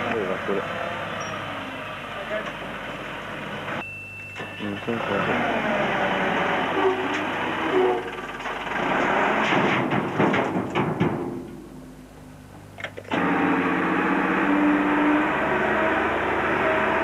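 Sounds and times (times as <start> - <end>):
engine droning: 0.0 - 3.8, 4.4 - 9.5, 13.1 - 17.0
earth and roots clattering into truck: 8.4 - 11.5.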